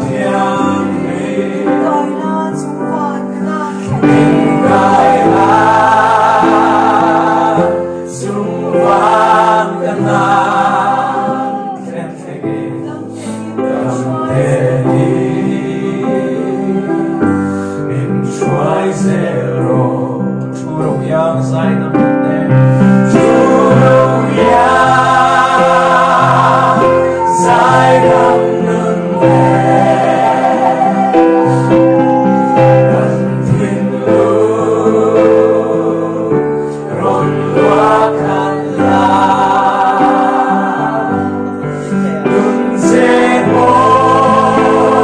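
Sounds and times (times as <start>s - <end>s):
instrumental backing: 0.0s - 19.6s, 21.7s - 45.0s
voices singing gospel song: 0.0s - 45.0s.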